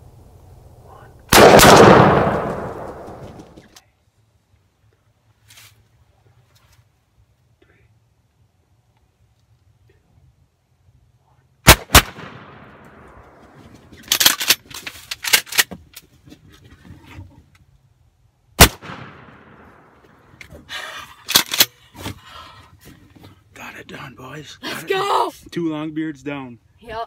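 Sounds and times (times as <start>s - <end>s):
shotgun blasts with echo: 1.3s - 3.5s, 11.6s - 13.1s, 18.6s - 20.0s
clicks and rustling: 13.5s - 17.7s.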